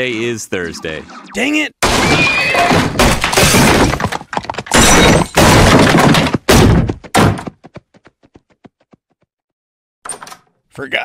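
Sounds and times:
wooden furniture splintering crashes: 1.8 - 4.2, 4.8 - 7.4.

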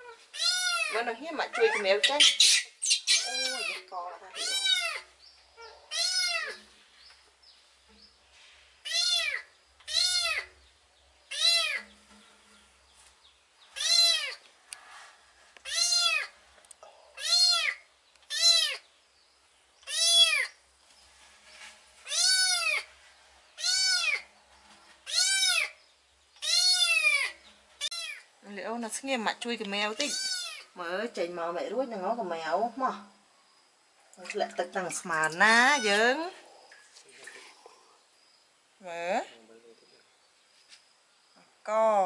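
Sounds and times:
kitten meowing: 0.4 - 1.0, 3.1 - 3.8, 4.4 - 5.0, 5.6 - 6.6, 8.9 - 10.5, 11.3 - 11.8, 13.8 - 14.4, 15.6 - 16.3, 17.2 - 18.8, 19.9 - 20.5, 22.1 - 22.9, 23.6 - 24.2, 25.1 - 25.7, 26.4 - 28.2, 30.0 - 30.7.

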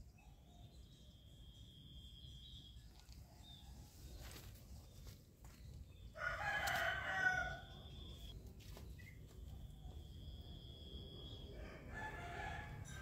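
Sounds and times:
rooster crowing: 6.2 - 8.0, 11.5 - 13.0.

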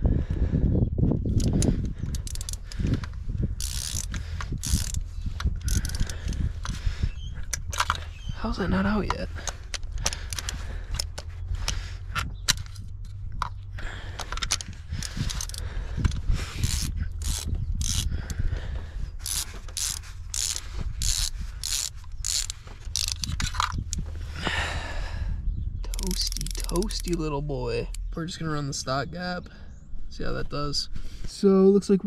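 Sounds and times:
ratchet wrench clicking: 1.3 - 8.2, 9.4 - 13.5, 14.2 - 18.4, 19.2 - 24.1, 25.9 - 27.2.

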